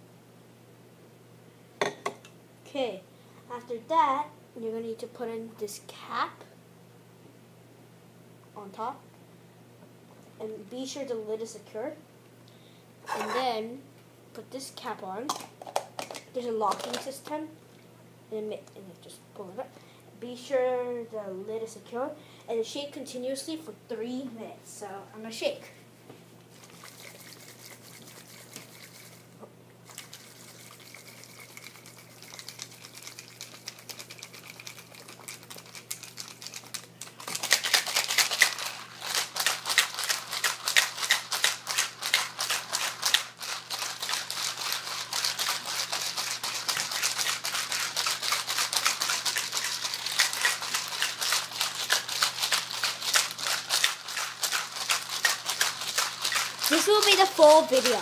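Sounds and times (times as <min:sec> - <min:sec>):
ice rattling in plastic shaker: 0:16.0 - 0:17.1, 0:26.5 - 0:58.0.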